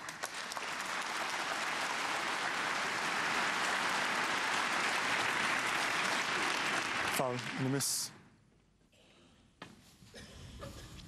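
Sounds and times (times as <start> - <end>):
audience applauding: 0.0 - 8.1.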